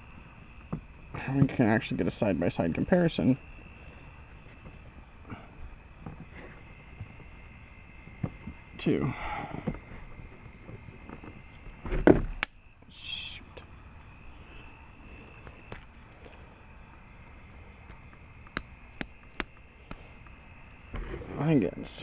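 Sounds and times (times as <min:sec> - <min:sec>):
crickets chirring: 0:00.0 - 0:22.0
sharp clicks: 0:17.9 - 0:20.4.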